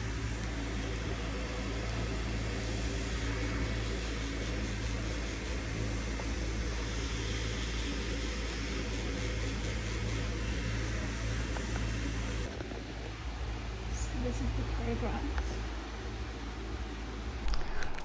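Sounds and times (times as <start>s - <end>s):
tattoo machine buzzing: 0.0s - 12.5s.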